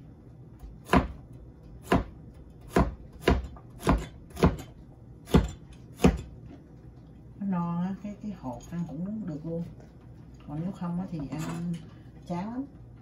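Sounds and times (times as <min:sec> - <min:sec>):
cleaver chopping on cutting board: 0:00.8 - 0:04.7, 0:05.3 - 0:06.3.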